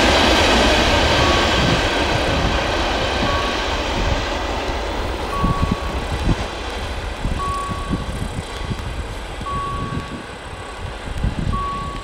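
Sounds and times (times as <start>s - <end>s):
crossing signal beeping: 1.1s - 2.5s, 3.1s - 4.2s, 5.1s - 6.5s, 7.3s - 8.4s, 9.4s - 10.8s, 11.5s - 12.0s.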